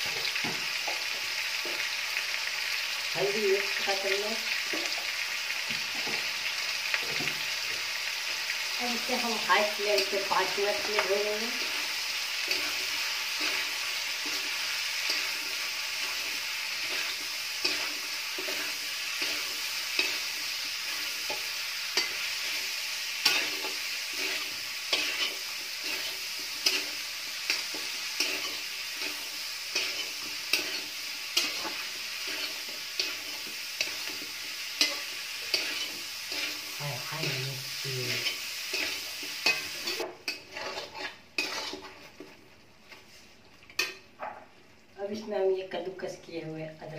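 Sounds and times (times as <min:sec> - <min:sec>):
onions sizzling in hot oil: 0:00.0 - 0:43.0
spatula scraping and knocking pan: 0:10.8 - 0:37.4, 0:38.1 - 0:43.0.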